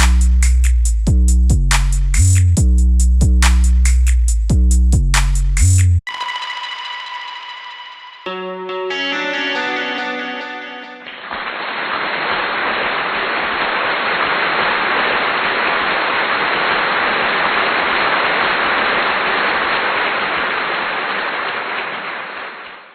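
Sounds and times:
guitar music: 8.2s - 11.3s.

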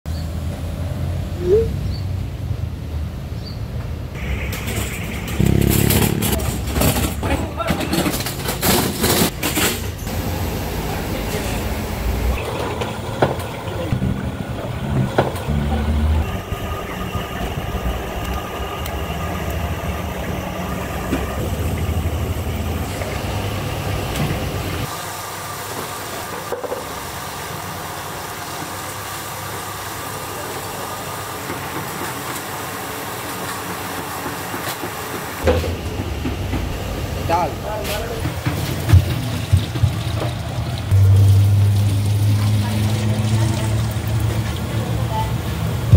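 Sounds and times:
hot oil sizzling: 10.1s - 35.5s, 36.9s - 45.9s
low rumble with knocks: 12.6s - 23.3s.

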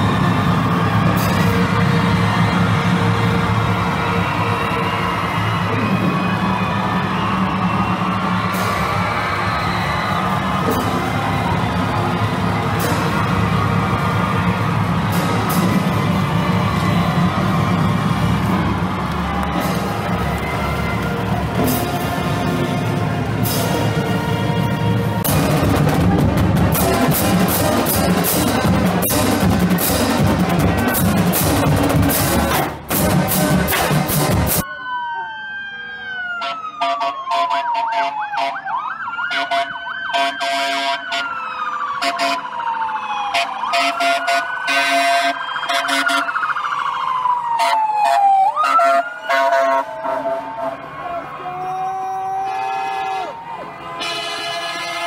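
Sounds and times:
fire engine siren wailing: 0.0s - 29.2s, 34.4s - 55.0s
pep band playing: 10.2s - 34.6s.

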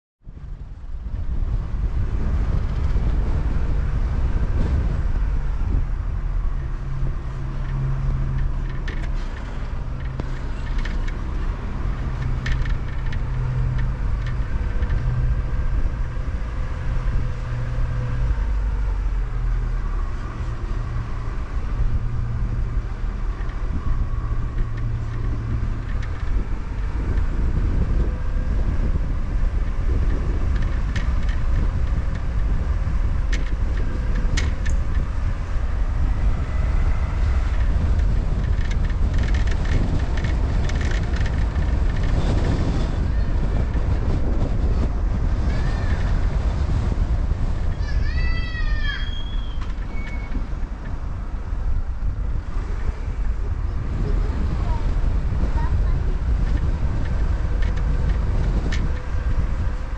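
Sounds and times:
road and wind noise: 0.2s - 59.9s
car engine hum: 0.4s - 59.9s.

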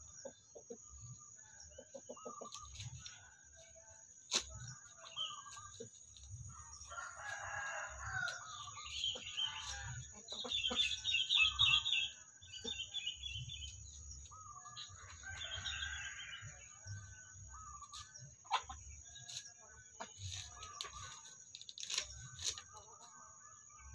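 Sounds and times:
chickens clucking: 0.0s - 23.4s
rooster crowing: 6.8s - 10.0s, 14.8s - 17.8s.

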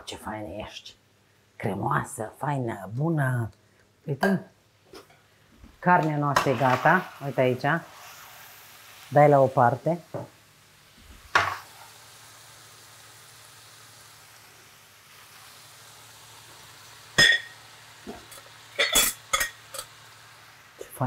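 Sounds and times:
chicken sizzling in pan: 6.1s - 21.0s.

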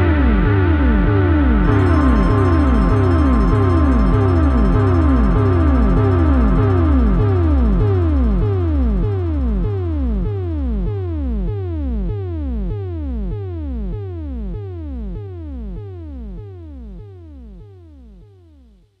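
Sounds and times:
synthesizer note swooping down: 0.1s - 10.0s.

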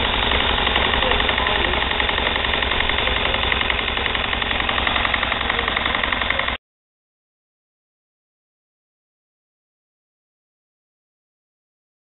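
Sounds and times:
model steam engines chuffing: 0.0s - 6.6s.

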